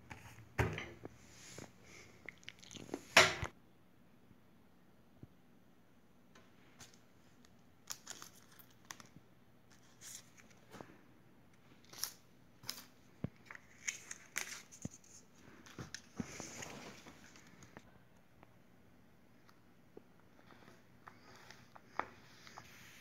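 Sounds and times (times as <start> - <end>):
paper crackles and rustles: 6.8 - 10.9, 11.8 - 17.8.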